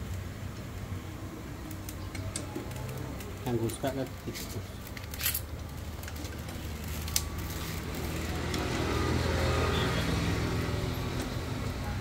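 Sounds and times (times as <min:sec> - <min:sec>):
vehicle engine hum: 0:04.6 - 0:12.0.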